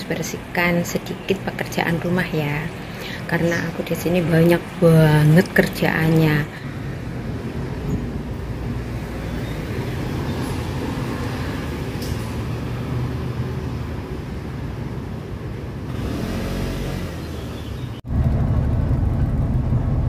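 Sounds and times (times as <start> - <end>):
motor scooters passing: 15.8 - 18.0
low engine rumble: 17.3 - 20.0.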